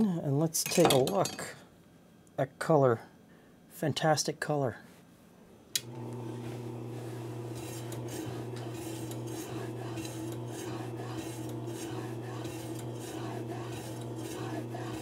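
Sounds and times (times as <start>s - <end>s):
meat slicer motor humming: 5.8s - 15.0s
rasping slicing strokes: 7.4s - 15.0s.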